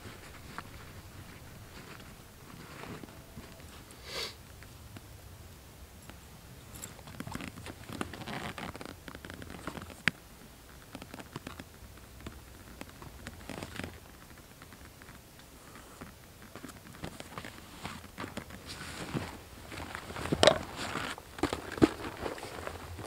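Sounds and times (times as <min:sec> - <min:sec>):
fabric rustling: 0:00.0 - 0:03.9, 0:16.6 - 0:23.0
straps being pulled: 0:06.8 - 0:10.0.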